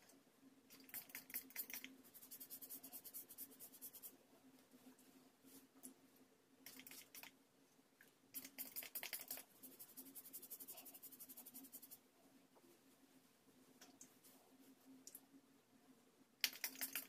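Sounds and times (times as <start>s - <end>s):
faint steady hum: 0.0s - 17.0s
fingers rubbing through hair: 0.8s - 4.2s, 8.4s - 12.0s.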